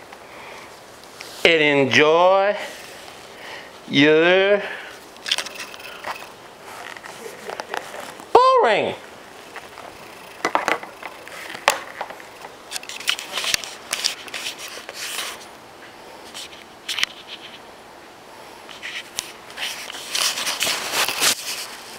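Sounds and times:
rustling against clothing: 0:02.6 - 0:04.1, 0:04.8 - 0:08.4, 0:09.0 - 0:17.7, 0:18.8 - 0:21.9.

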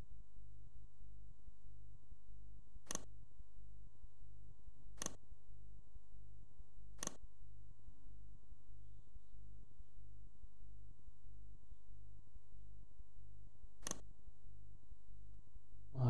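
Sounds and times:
steady low hum: 0:00.0 - 0:16.0
computer mouse clicks: 0:02.8 - 0:03.1, 0:05.0 - 0:05.2, 0:07.0 - 0:07.2, 0:13.8 - 0:14.1.

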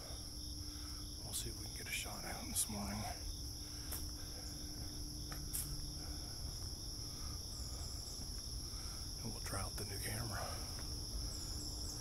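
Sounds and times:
crickets trilling: 0:00.0 - 0:12.0.

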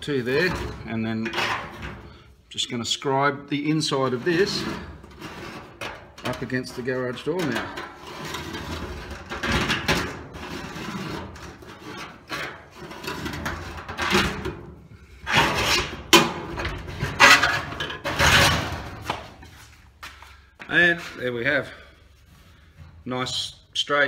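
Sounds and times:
metal scribe scratching steel: 0:17.0 - 0:18.9.

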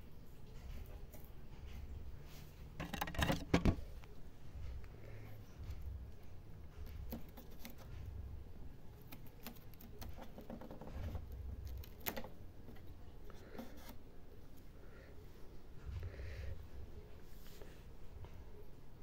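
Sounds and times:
soft rustling: 0:15.7 - 0:18.6.

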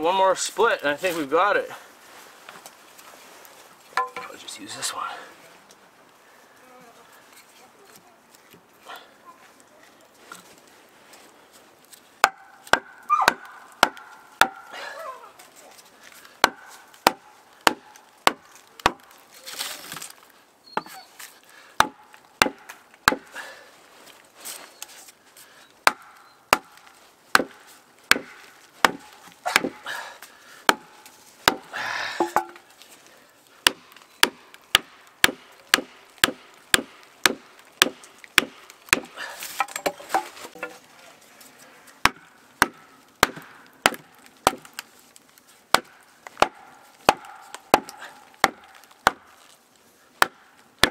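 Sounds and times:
wood crackling as it splits: 0:00.0 - 0:04.8, 0:05.5 - 0:50.9
axe hammering on wooden wedges: 0:04.0 - 0:04.4, 0:12.2 - 0:14.8, 0:16.4 - 0:19.1, 0:21.8 - 0:23.4, 0:25.8 - 0:30.0, 0:30.7 - 0:32.6, 0:33.6 - 0:40.8, 0:42.0 - 0:44.8, 0:45.7 - 0:49.3, 0:50.2 - 0:50.9.

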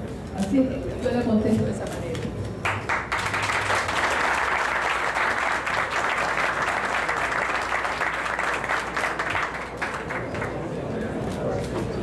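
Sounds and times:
crowd applauding: 0:02.6 - 0:10.9.

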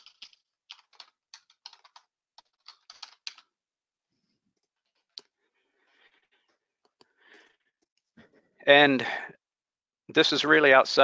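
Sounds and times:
typing on computer keyboard: 0:00.0 - 0:03.5.

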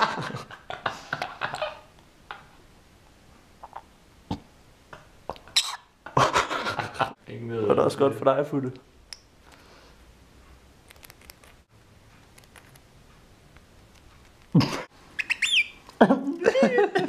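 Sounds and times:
lovebird chirps and squawks: 0:05.6 - 0:05.9, 0:15.2 - 0:15.8.

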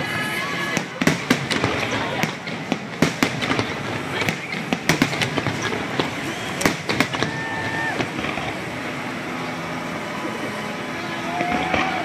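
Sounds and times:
fireworks bangs and crackles: 0:00.0 - 0:12.0
steady noisy background: 0:00.0 - 0:12.0
firework whistle: 0:03.5 - 0:12.0.

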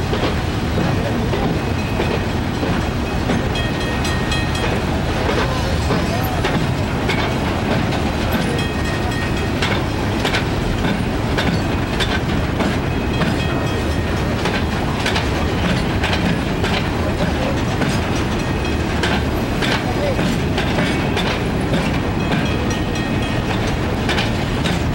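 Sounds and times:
train wheels rumbling on rail: 0:00.0 - 0:24.9
wheels clacking over rail joints: 0:00.0 - 0:24.9.

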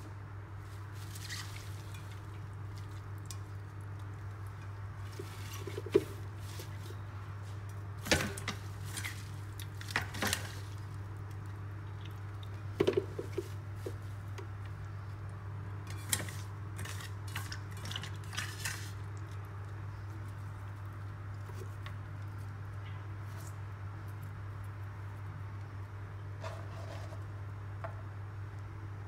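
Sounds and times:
steady low hum: 0:00.0 - 0:29.0
leaves rustling: 0:00.6 - 0:03.1, 0:05.0 - 0:11.0.

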